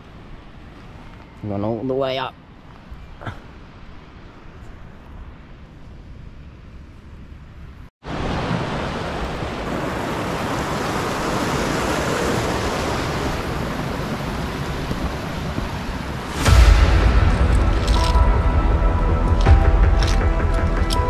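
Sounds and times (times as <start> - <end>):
faint wind rumble: 0.0 - 21.0
stream rushing over rocks: 8.0 - 18.3.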